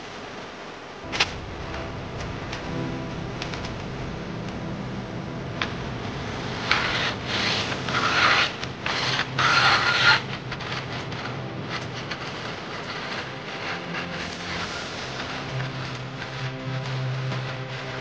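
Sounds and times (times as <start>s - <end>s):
rough rubbing on wood: 6.6s - 18.0s.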